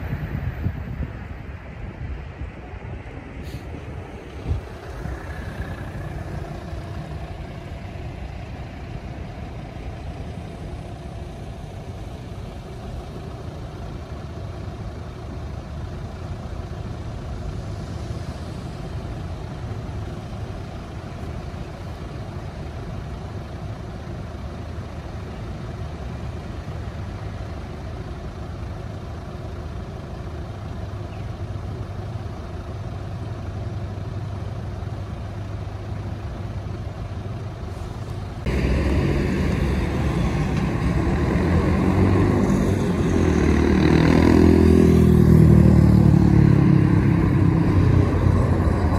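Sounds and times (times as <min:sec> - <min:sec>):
cars idling: 0:00.0 - 0:48.9.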